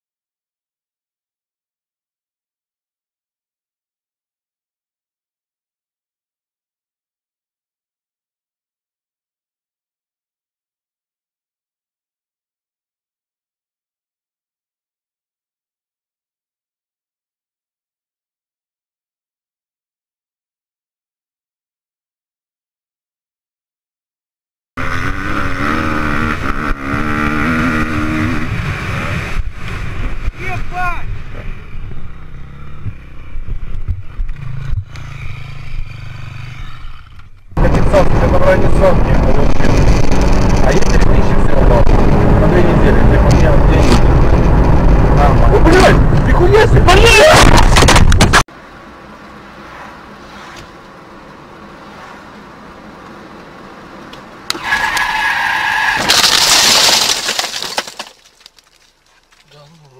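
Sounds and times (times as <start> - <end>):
dirt bike engine running: 24.8 - 52.9
road noise inside car: 28.4 - 56.0
motorcycle crashing in dirt: 47.2 - 48.4, 55.8 - 59.5.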